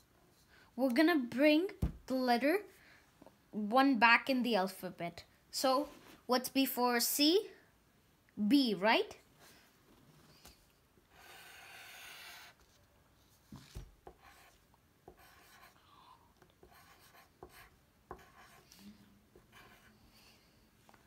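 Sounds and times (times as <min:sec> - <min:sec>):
pencil scratching on paper: 0:11.2 - 0:12.6, 0:14.0 - 0:15.8, 0:16.6 - 0:20.0
pencil knocking on page: 0:13.5 - 0:15.7, 0:16.6 - 0:18.6.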